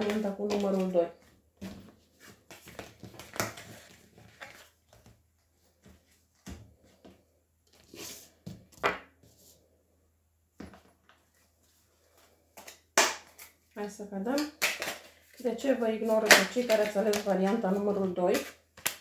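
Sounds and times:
cards sliding on plastic tablecloth: 7.7 - 8.6.

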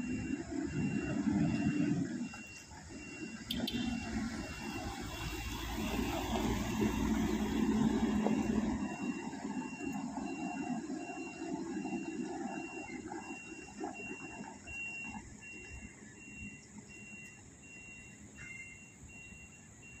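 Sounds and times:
truck engine driving away: 0.0 - 17.1.

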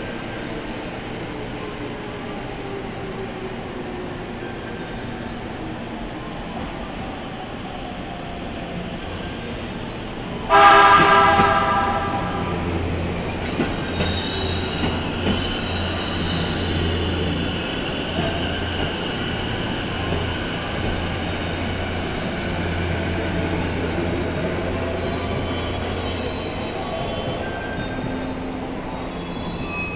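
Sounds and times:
train running with low rumble: 0.0 - 29.9
train wheel squeal: 9.5 - 29.9
electric train horn blast: 10.5 - 12.9.

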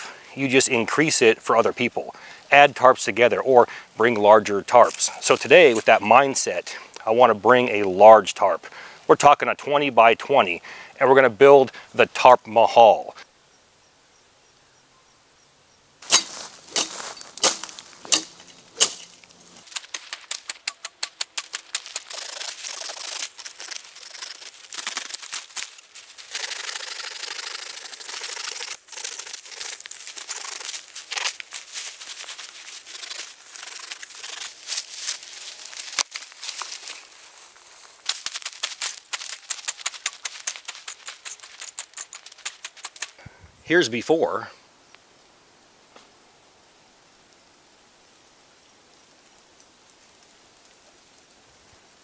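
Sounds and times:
breaking stems snapping: 16.0 - 43.2
crunching through dry leaves: 16.0 - 43.2.

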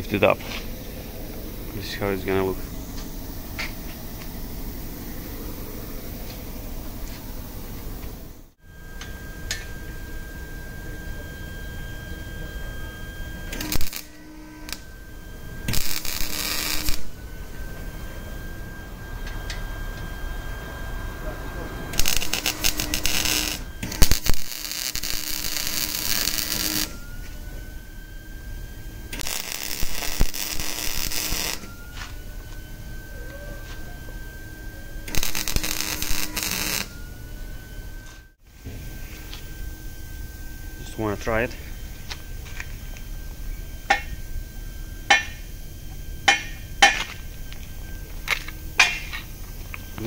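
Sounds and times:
welder arc crackling: 13.5 - 18.0, 21.9 - 27.0, 29.1 - 32.6, 35.0 - 37.0.

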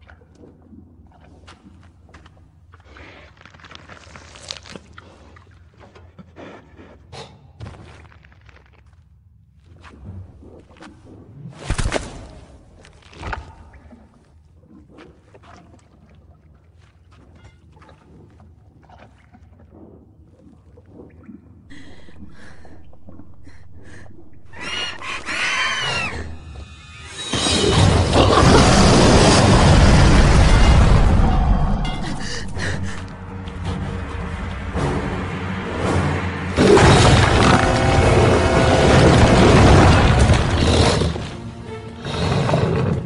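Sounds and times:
low rumble: 21.6 - 27.0, 27.7 - 41.9
film soundtrack music: 21.7 - 43.0
shrill creature screeching call: 24.5 - 27.4
creature chirps and squeaks: 24.6 - 26.5.

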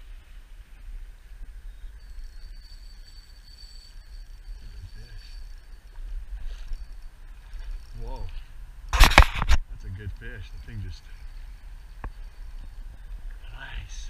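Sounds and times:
faint steady hiss: 0.0 - 14.0
thin high whine: 0.7 - 9.6.

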